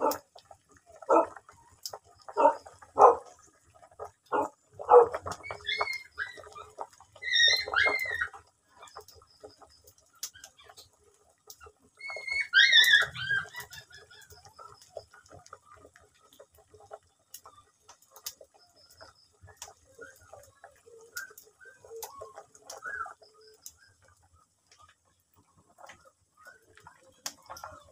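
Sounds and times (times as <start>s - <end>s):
animal barking: 0.0s - 0.2s, 1.1s - 1.4s, 2.3s - 3.3s, 4.3s - 5.3s
high-pitched bending animal calls: 5.3s - 8.5s, 12.0s - 14.4s.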